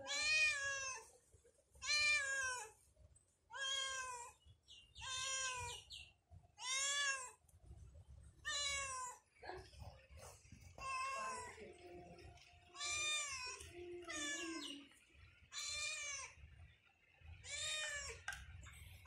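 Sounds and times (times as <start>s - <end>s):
cat meowing: 0.0s - 1.1s, 1.8s - 2.8s, 3.5s - 4.4s, 5.0s - 5.8s, 6.6s - 7.4s, 8.4s - 9.2s, 12.7s - 14.8s, 15.5s - 16.4s, 17.4s - 18.2s.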